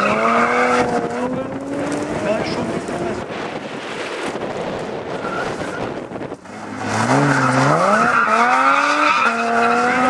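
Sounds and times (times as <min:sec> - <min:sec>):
gravel rushing under tires: 0:00.0 - 0:10.0
rally car engine revving: 0:00.0 - 0:10.0.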